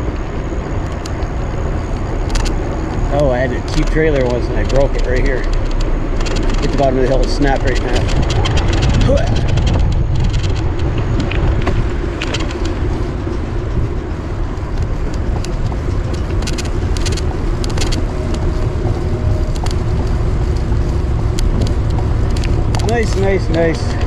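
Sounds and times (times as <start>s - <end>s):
bike clicks and rattles: 0.0s - 24.0s
tyre hum on pavement: 0.0s - 24.0s
wind buffeting microphone: 0.0s - 24.0s.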